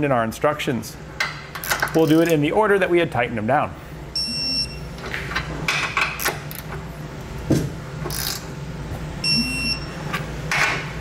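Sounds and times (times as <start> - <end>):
torque wrench high beep: 4.2 - 4.8, 9.2 - 9.9
wrench ratchet clicks: 8.1 - 8.4.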